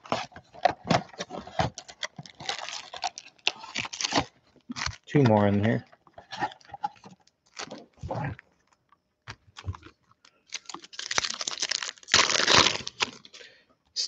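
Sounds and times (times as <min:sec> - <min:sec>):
foil packs clicking and crinkling: 0:00.0 - 0:08.0, 0:09.3 - 0:13.4
foil wrapper tearing open: 0:01.6 - 0:05.1, 0:10.5 - 0:13.3.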